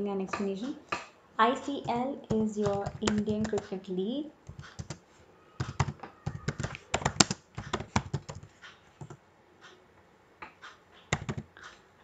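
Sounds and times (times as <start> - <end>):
computer keyboard typing: 1.6 - 3.8, 4.4 - 5.0, 5.6 - 9.2, 11.1 - 11.6.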